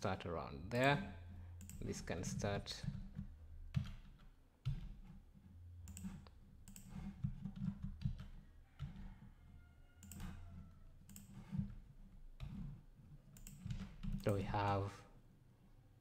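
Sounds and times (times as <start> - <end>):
mouse and keyboard clicks: 5.8 - 9.0, 10.0 - 11.7, 13.3 - 14.8.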